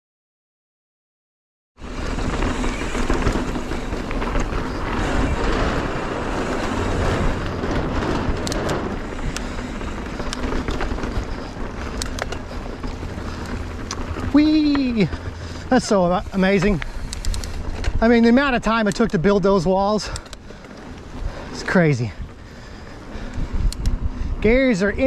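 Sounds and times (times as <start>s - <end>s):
bike tyre noise on dirt: 1.8s - 25.0s
sharp clicks and rattles: 1.8s - 25.0s
wind on microphone: 21.1s - 25.0s.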